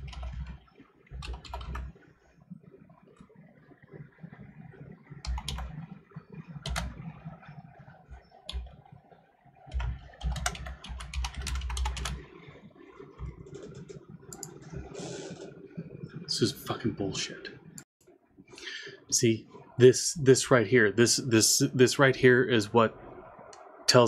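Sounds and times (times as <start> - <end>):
typing on computer keyboard: 0.0 - 0.5, 1.2 - 1.8, 5.2 - 5.7, 9.7 - 12.2.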